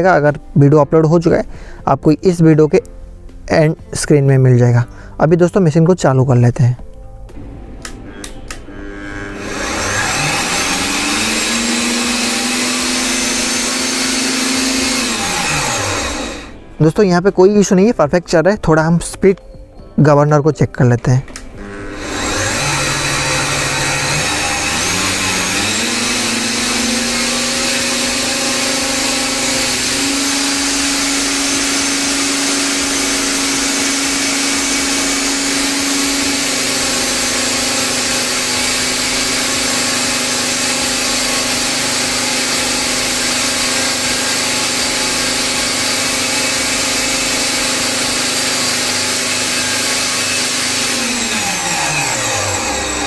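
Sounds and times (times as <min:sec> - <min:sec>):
electric motor whining: 0:07.4 - 0:16.8, 0:21.3 - 0:53.0.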